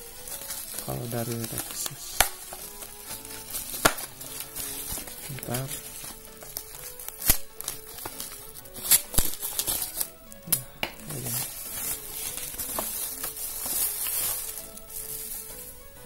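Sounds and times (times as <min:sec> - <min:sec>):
bubble wrap and plastic crinkling: 0:00.0 - 0:16.0
plastic clicks and snaps: 0:06.4 - 0:11.3.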